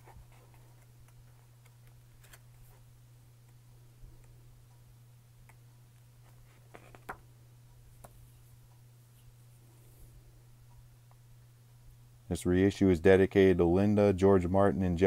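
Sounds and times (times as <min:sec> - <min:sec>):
faint low steady hum: 0:00.0 - 0:15.0
paper pages turning: 0:00.1 - 0:02.8.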